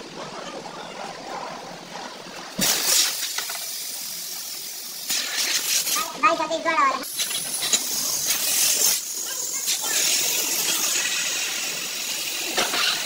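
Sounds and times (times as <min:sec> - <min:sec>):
compressed air hissing: 0:02.6 - 0:06.1, 0:07.0 - 0:13.0.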